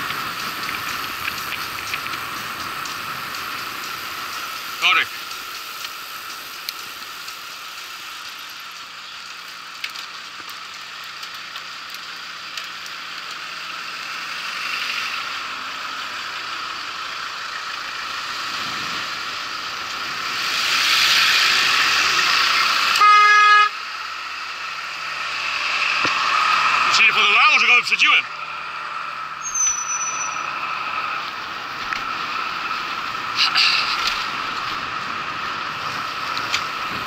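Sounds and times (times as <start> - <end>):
road traffic noise: 0.0 - 37.0
short horn toot: 23.0 - 23.8.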